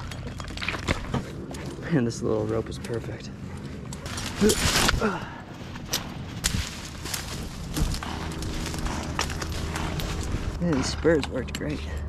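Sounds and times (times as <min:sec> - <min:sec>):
steady low hum: 0:00.0 - 0:12.0
branches rustling underfoot: 0:03.0 - 0:10.7.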